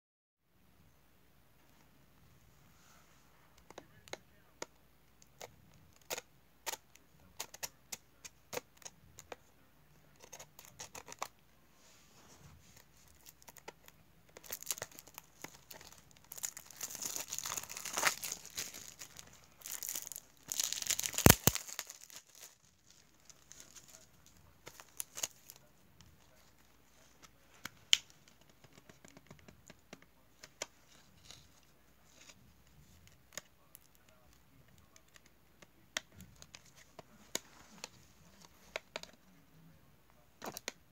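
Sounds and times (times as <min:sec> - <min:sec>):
cellophane tearing and crinkling: 0:13.1 - 0:25.6.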